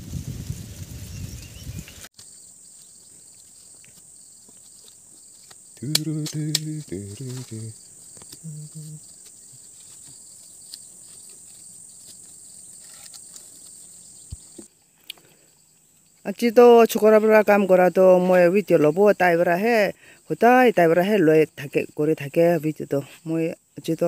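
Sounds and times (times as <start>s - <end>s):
high-pitched insect drone: 2.2s - 14.7s
low voice: 5.8s - 7.8s, 8.4s - 9.0s.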